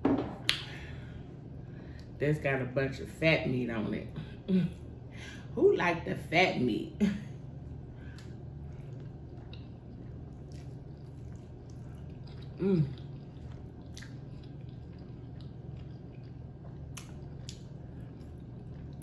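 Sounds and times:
steady low hum: 0:00.0 - 0:19.0
wet chewing and lip smacks: 0:08.0 - 0:19.0.

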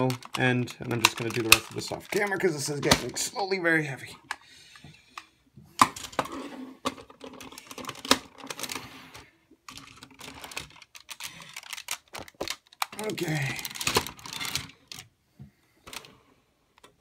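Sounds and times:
plastic toy parts clicking: 0:00.0 - 0:03.1, 0:09.7 - 0:15.1
rustling handling: 0:00.0 - 0:03.2, 0:06.2 - 0:15.2.

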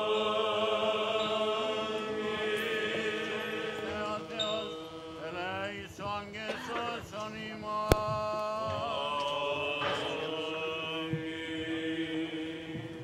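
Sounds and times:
voices chanting long notes: 0:00.0 - 0:13.0
sharp click: 0:07.9 - 0:08.1.

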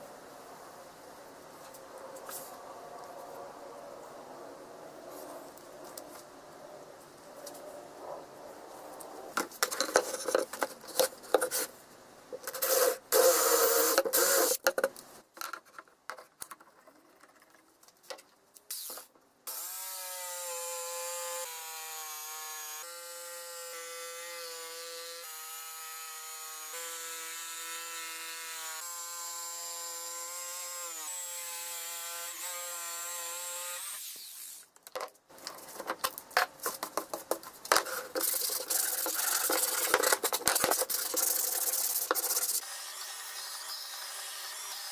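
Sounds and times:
scraping and knocking of board: 0:09.4 - 0:11.7, 0:34.9 - 0:41.2
electric jigsaw cutting wood: 0:19.5 - 0:34.6, 0:42.6 - 0:44.9.

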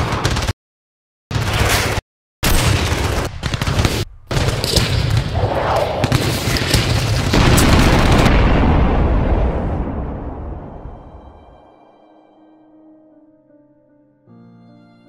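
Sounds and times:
gunfire: 0:00.0 - 0:00.6, 0:01.3 - 0:09.0
heavy booms: 0:02.4 - 0:11.7
low rumble: 0:08.0 - 0:12.4.

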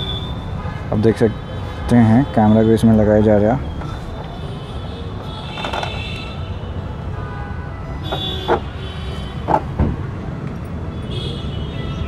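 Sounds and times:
sharp knocks: 0:09.4 - 0:10.0.

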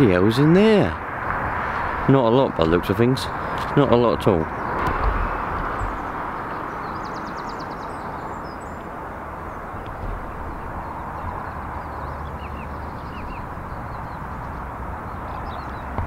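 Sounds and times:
birds chirping: 0:00.0 - 0:16.0
rushing background hiss: 0:00.0 - 0:16.0
bird trill: 0:04.5 - 0:08.8, 0:09.4 - 0:16.0.

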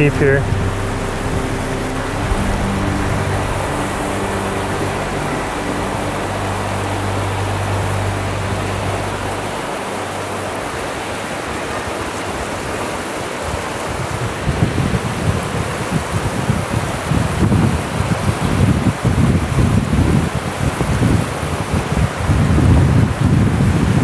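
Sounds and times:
low steady hum: 0:00.0 - 0:12.8
river rapids roaring: 0:00.0 - 0:23.3.

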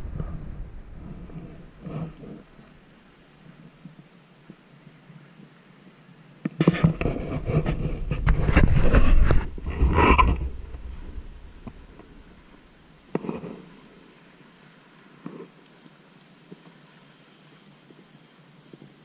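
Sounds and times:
camera handling noise on microphone: 0:06.5 - 0:13.6.

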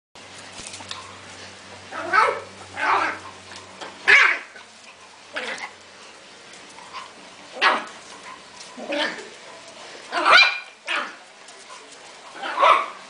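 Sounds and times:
dog barking: 0:10.2 - 0:11.1, 0:12.4 - 0:13.0.

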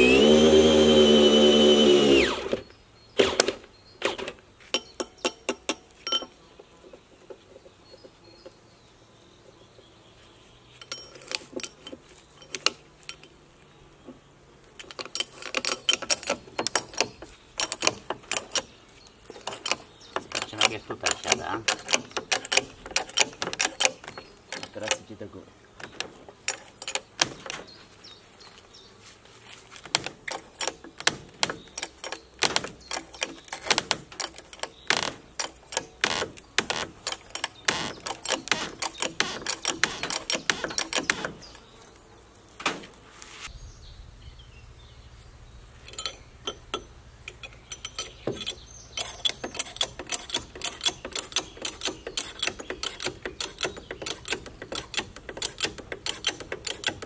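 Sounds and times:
ratchet clicking rapidly: 0:36.8 - 0:41.3, 0:45.8 - 0:57.0.

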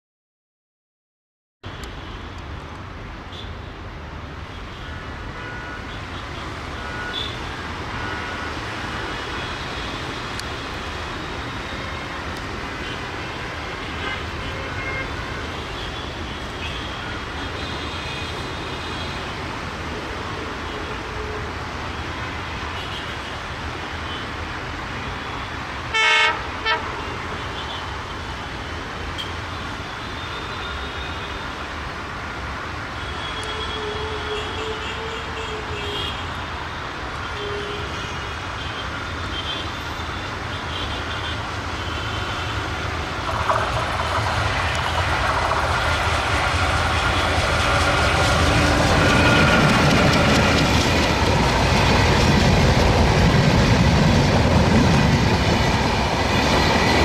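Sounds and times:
locomotive horn blasts: 0:25.9 - 0:27.0
diesel locomotive rumble: 0:41.4 - 0:57.0.

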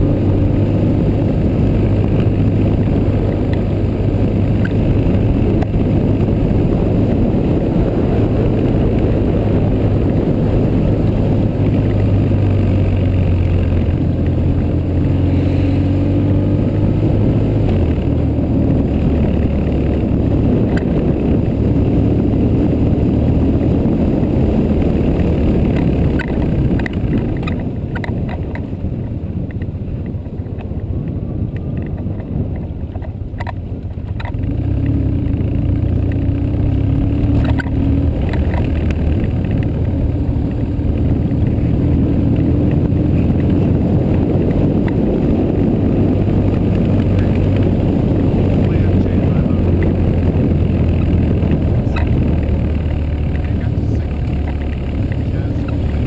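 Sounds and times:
motorcycle engine running: 0:00.0 - 0:56.0
wind rushing over microphone: 0:00.0 - 0:56.0.

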